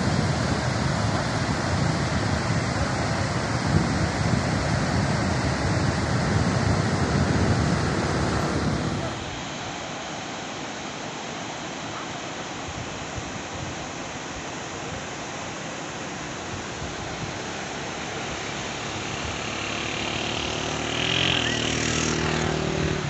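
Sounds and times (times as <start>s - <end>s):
wind noise: 0.0s - 9.2s
surf washing on shore: 0.0s - 23.0s
vehicle engine approaching: 18.8s - 23.0s.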